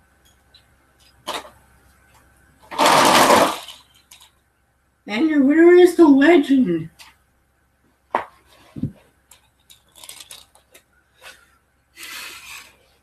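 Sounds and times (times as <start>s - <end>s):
toy trucks being handled: 0.3s - 4.4s, 8.2s - 13.0s.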